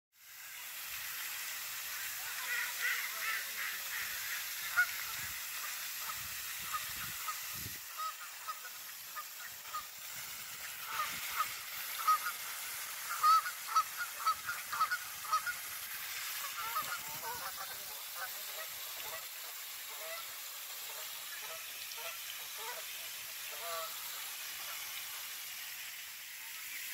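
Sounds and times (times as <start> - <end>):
fountain spray hissing: 0.2 - 26.9
geese honking: 1.9 - 9.9, 10.8 - 15.7, 16.4 - 19.3, 19.9 - 20.3, 20.9 - 22.9, 23.5 - 24.0.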